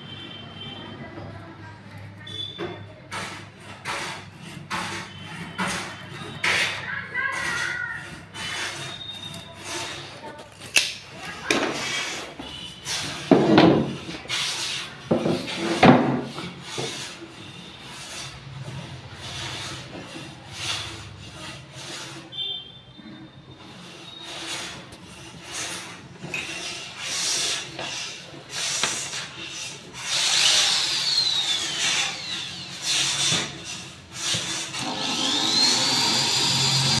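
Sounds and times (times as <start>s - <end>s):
cordless drill driving screws: 30.0s - 37.0s.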